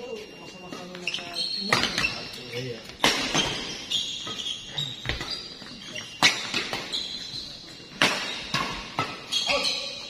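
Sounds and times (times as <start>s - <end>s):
shoe squeaks: 0.0s - 10.0s
rackets striking shuttlecock: 2.9s - 4.4s, 7.9s - 9.3s.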